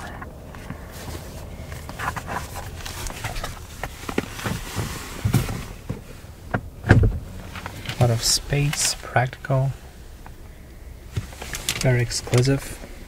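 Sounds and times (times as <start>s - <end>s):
knocks and rustles in glove box: 0.0s - 9.0s.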